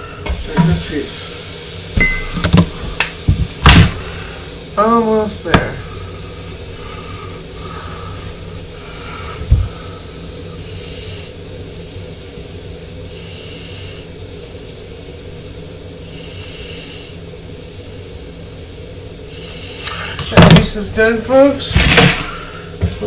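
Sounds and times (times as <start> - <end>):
soft hissing: 0.0 - 23.0
steady low hum: 0.0 - 23.0.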